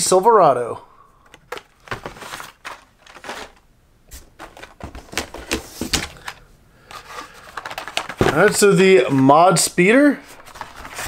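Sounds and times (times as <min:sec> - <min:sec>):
cardboard rustle: 0:01.5 - 0:09.5, 0:10.2 - 0:11.0.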